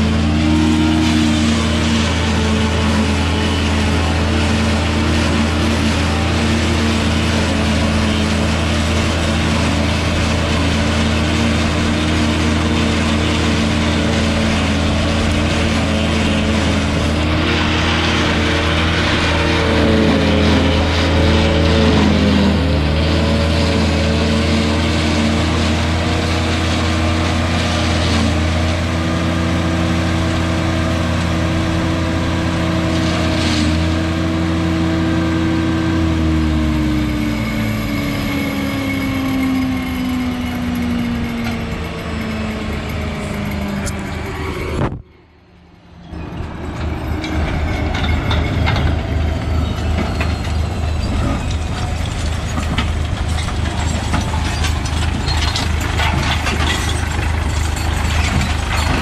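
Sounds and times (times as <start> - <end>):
harvester engine running: 0.0 - 59.0
engine chugging roughly: 37.1 - 44.5.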